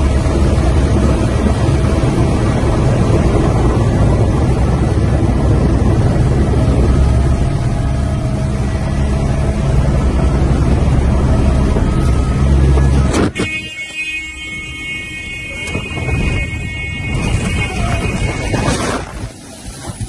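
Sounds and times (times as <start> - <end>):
helicopter rotor drone: 0.0 - 20.0
steady high-pitched tone: 5.6 - 20.0.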